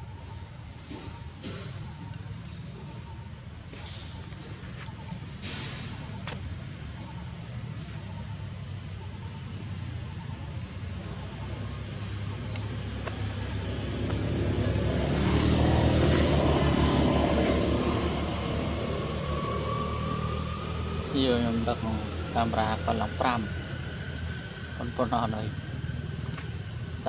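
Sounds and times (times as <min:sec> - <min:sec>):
vehicle engine passing: 0:10.8 - 0:27.0.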